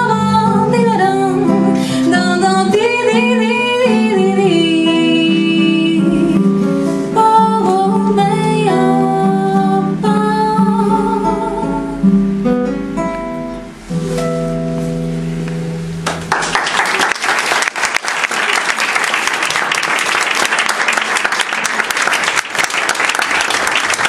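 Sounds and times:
classical guitar playing bossa nova: 0.0 - 16.3
audience applause: 16.0 - 24.0.

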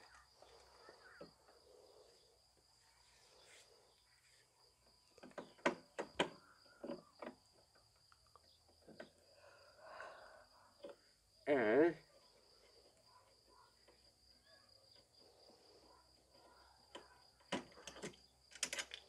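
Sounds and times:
faint high insect-like tone: 0.0 - 19.0
sharp clicks and knocks: 5.2 - 9.2, 16.9 - 19.0.

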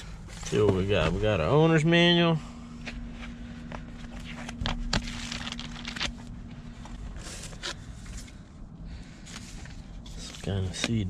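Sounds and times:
papers rustling: 2.9 - 8.4.

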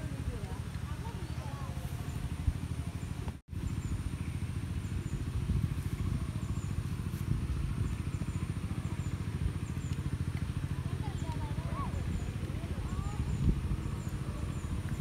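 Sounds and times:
engine throbbing: 0.0 - 15.0.

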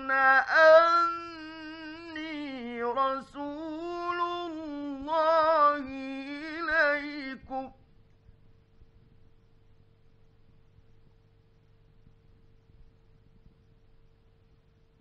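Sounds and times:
man chanting melodically: 0.0 - 7.8.

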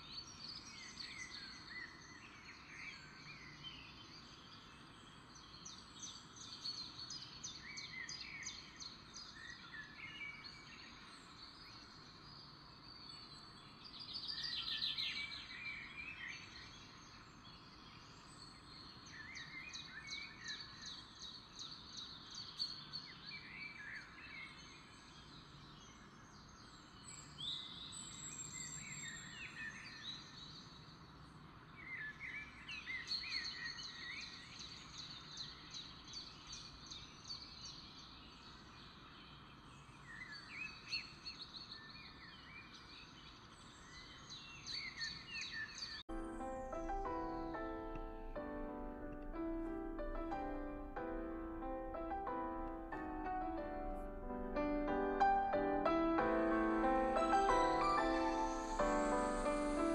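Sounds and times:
small birds chirping: 0.0 - 59.9
faint steady hiss: 46.1 - 59.9.

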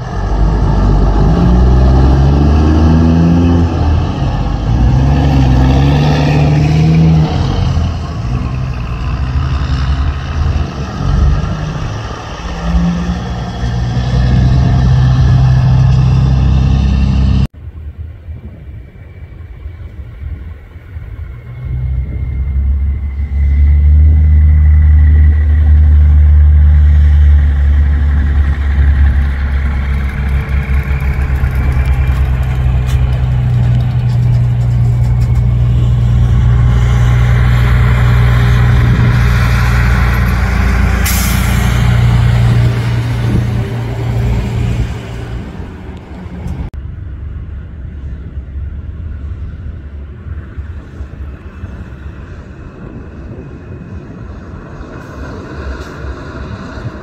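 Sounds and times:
truck diesel engines passing: 0.0 - 17.5, 18.9 - 57.0
distant truck engine: 0.0 - 17.8, 18.8 - 57.0
air brakes hissing: 41.0 - 42.0.

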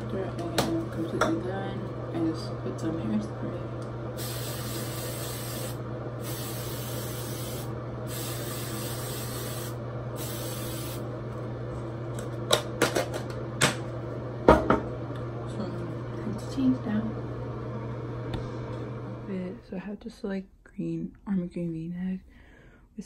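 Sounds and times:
aerosol can spraying: 4.2 - 11.0.

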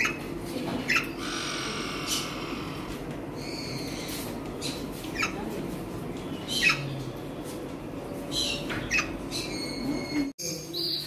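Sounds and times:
parrots squawking: 0.0 - 5.4, 6.4 - 6.9, 8.3 - 10.3.

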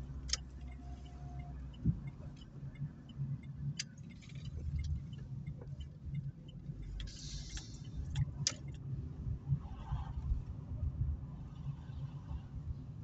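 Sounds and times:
car engine and road rumble: 0.0 - 13.0
sharp clicks and rattles: 1.8 - 8.8.

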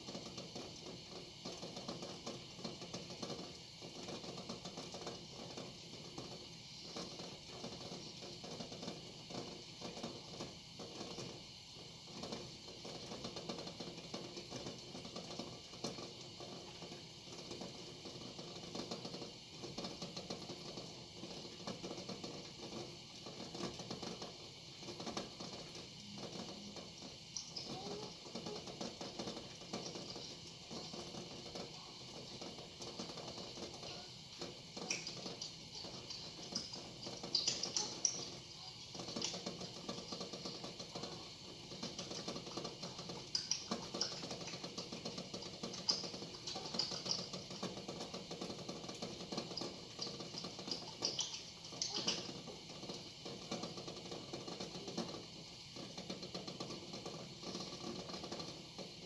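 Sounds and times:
eggs clicking in pot: 0.0 - 11.4, 12.1 - 59.0
water boiling and bubbling: 0.0 - 59.0.

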